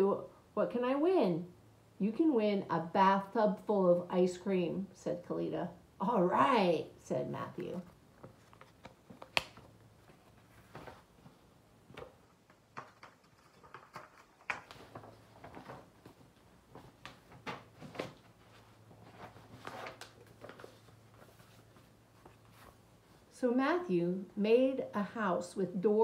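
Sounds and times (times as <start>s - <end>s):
book pages turning: 7.7s - 22.8s.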